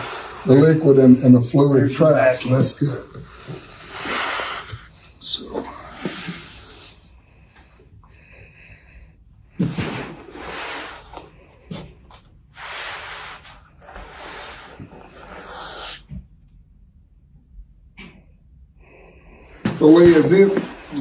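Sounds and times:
fabric pad rustling on wood: 19.8 - 21.0.

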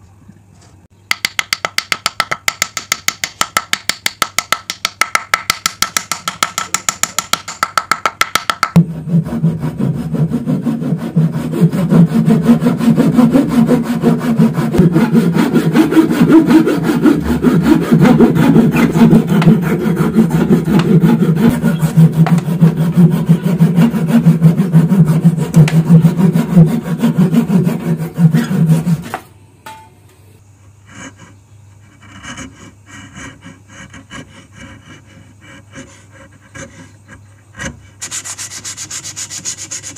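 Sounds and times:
handsaw cutting wood: 8.8 - 29.2, 31.9 - 39.9
chisel scraping wood: 10.4 - 29.2, 31.0 - 39.9.

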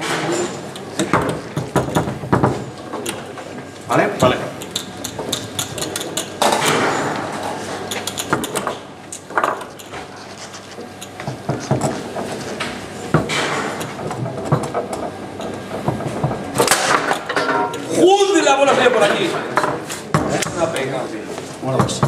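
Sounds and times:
foosball ball clacking: 11.2 - 17.9.

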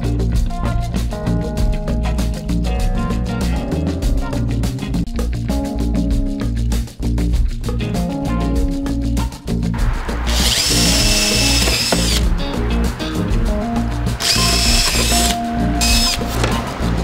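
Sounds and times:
cordless drill boring into plywood: 10.3 - 12.2, 14.2 - 16.2.

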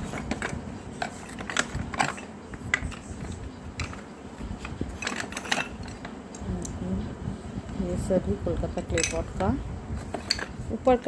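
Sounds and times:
clay pots clinking and scraping: 0.0 - 6.7, 8.8 - 11.0.

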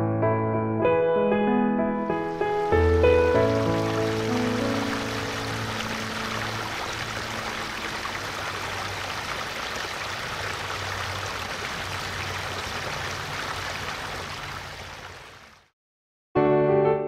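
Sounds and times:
stream trickling over rocks: 2.1 - 15.7.

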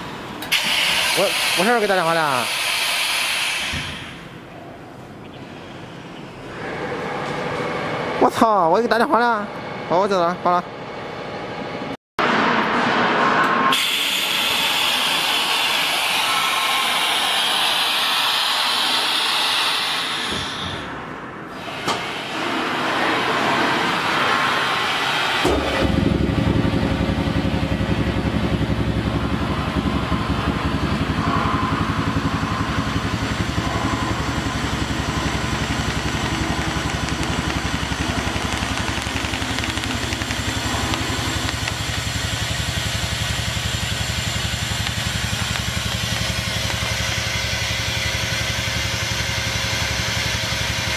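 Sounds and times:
rushing hiss of air: 0.5 - 4.2, 13.7 - 20.9
vacuum pump humming: 21.9 - 50.9.

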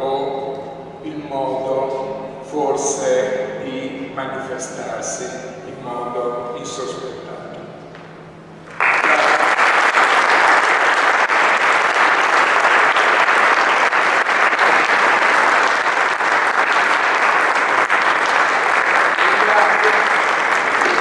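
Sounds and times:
audience applauding: 8.7 - 21.0.

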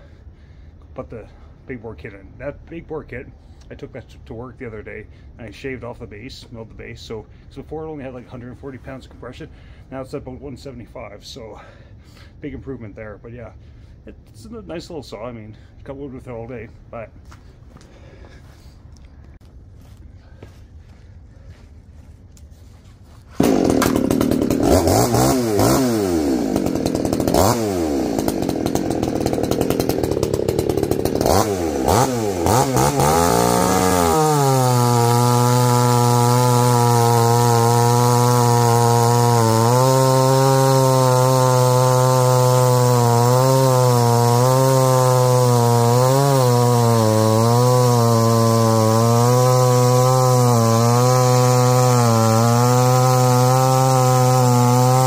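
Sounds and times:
chainsaw revving and cutting log: 23.1 - 55.0.

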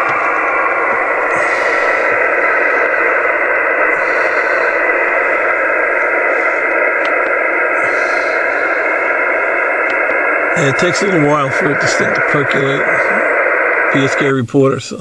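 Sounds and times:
faint steady tones: 0.0 - 15.0
radio receiver hiss: 0.0 - 15.0.

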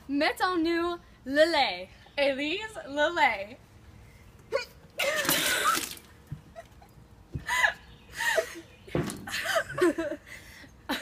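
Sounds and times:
liquid splashing: 5.1 - 6.2.

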